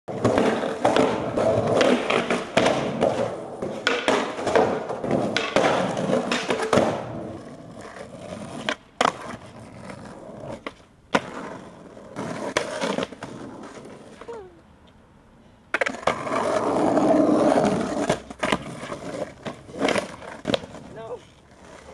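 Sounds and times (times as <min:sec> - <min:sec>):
skateboard smacks: 0:00.1 - 0:08.0, 0:10.6 - 0:11.6, 0:15.7 - 0:16.4, 0:17.7 - 0:20.9
skateboard clacks: 0:00.1 - 0:14.3, 0:15.7 - 0:21.9
skateboard scraping along curb: 0:00.1 - 0:14.6, 0:15.4 - 0:21.9
skateboard wheels rolling on concrete: 0:00.1 - 0:21.9.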